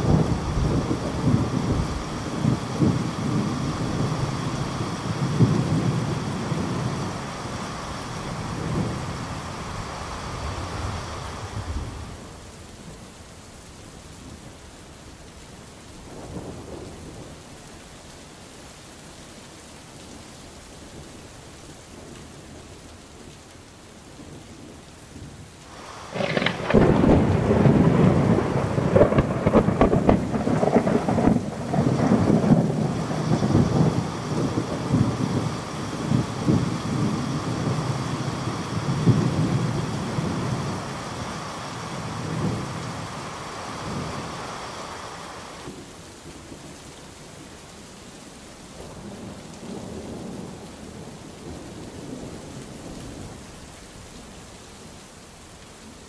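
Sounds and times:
rolling thunder: 0.0 - 12.5, 25.7 - 45.8
rain falling: 0.0 - 56.0.

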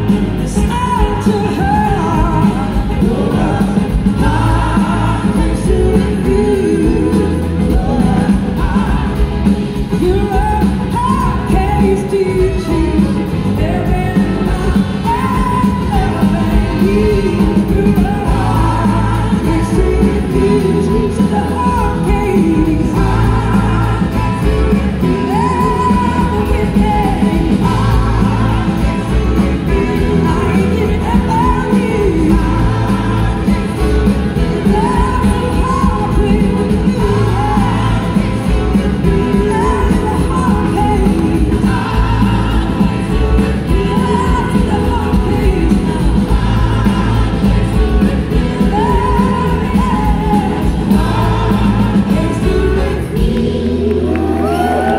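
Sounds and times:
live rock band playing: 0.0 - 54.9
woman singing: 0.0 - 54.9
horn section: 11.1 - 54.9.

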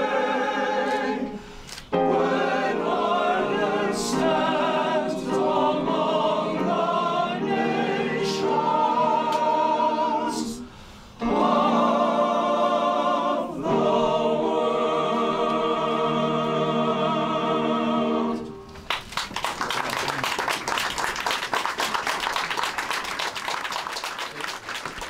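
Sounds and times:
male choir singing: 0.0 - 18.6
audience applause: 18.7 - 25.0.

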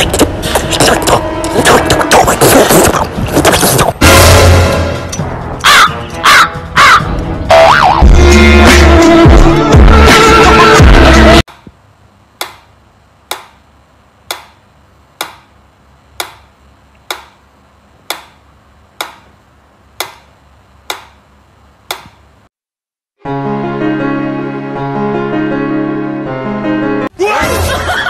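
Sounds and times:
music playing: 4.0 - 11.4, 23.2 - 28.0.

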